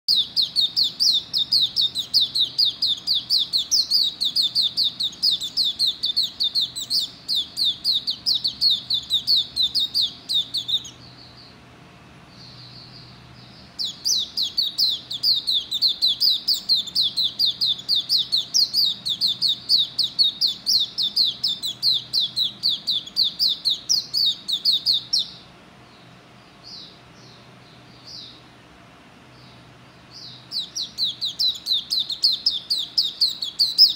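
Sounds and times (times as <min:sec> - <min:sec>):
soft bird chirps: 0:00.0 - 0:11.6, 0:12.3 - 0:28.5, 0:29.3 - 0:33.9
bird singing rapid high notes: 0:00.1 - 0:11.6, 0:12.4 - 0:25.4, 0:30.2 - 0:33.9.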